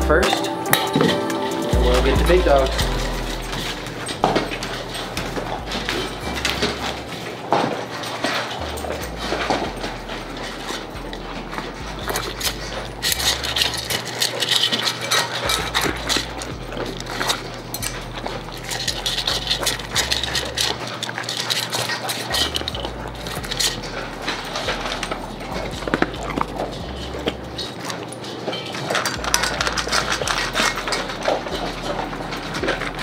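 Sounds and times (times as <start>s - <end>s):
dogs crunching dry kibble: 0.0s - 33.0s
kibble clinking against metal bowl: 0.0s - 33.0s.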